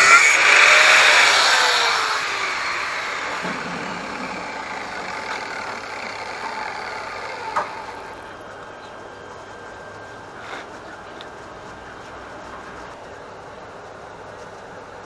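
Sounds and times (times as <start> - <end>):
angle grinder winding down: 0.0 - 8.4.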